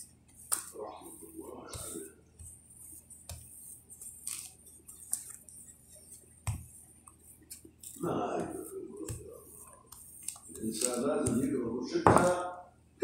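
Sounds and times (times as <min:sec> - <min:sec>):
rolling pin rubbing dough: 0:00.0 - 0:12.4
rolling pin knocking: 0:11.2 - 0:12.4.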